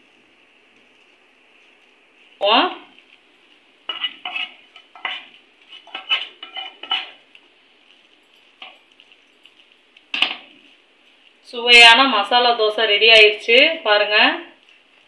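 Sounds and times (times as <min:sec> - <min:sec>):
spoon scraping and clinking bowl: 0:03.9 - 0:07.2.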